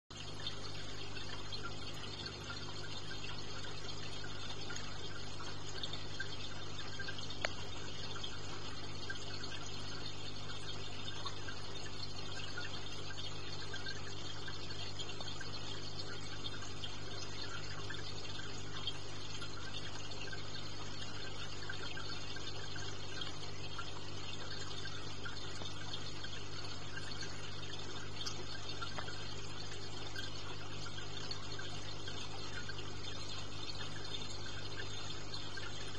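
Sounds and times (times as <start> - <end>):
low electrical hum: 0.1 - 35.9
running water: 0.1 - 35.9
small tick: 1.2 - 35.9.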